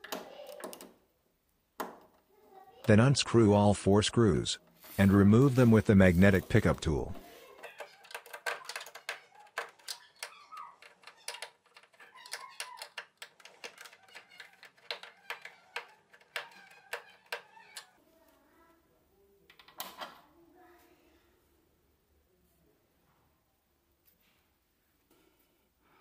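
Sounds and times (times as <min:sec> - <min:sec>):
screwdriver clicking on screws: 0:07.8 - 0:17.9.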